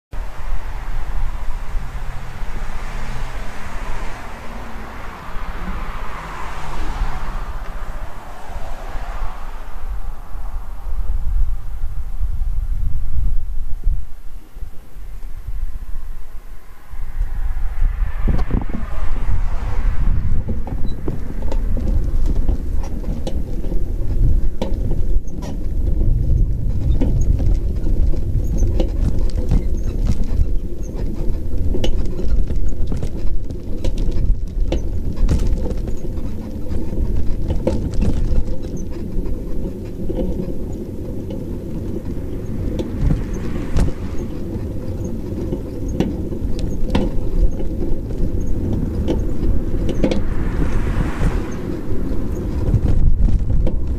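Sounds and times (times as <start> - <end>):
bicycle rumbling over pavement: 0.1 - 53.9.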